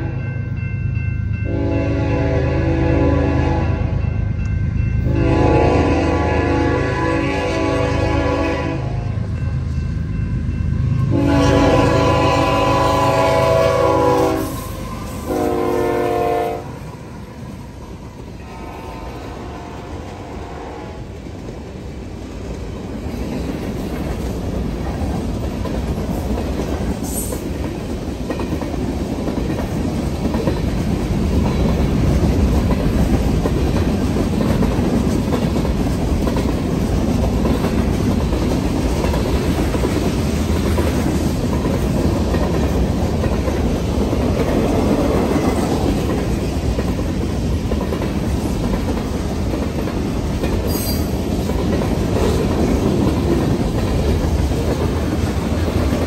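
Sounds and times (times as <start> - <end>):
locomotive horn blasts: 1.5 - 4.0, 5.1 - 9.2, 11.1 - 16.8, 18.4 - 21.0.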